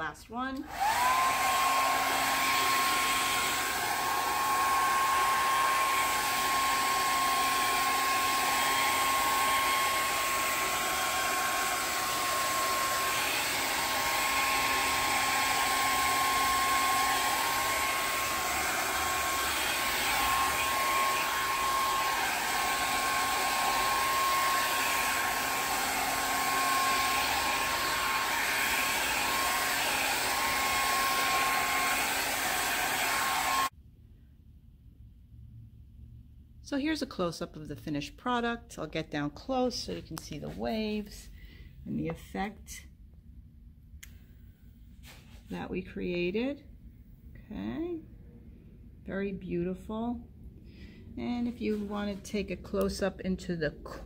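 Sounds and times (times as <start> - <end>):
hair dryer running: 0.6 - 33.7, 51.4 - 52.9.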